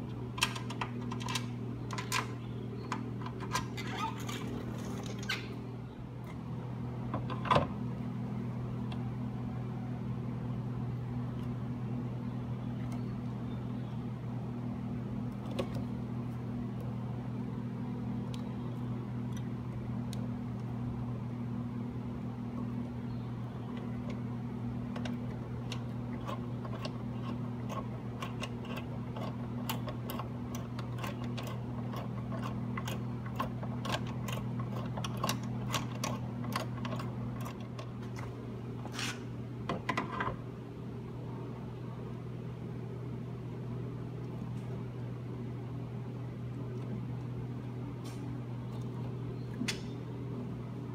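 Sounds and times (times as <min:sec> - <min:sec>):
steady low hum: 0:00.0 - 0:50.9.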